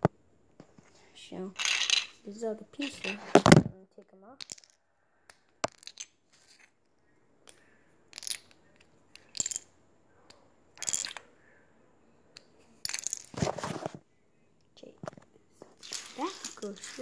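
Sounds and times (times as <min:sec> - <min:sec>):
plastic bricks clicking and clattering: 0:15.8 - 0:17.0.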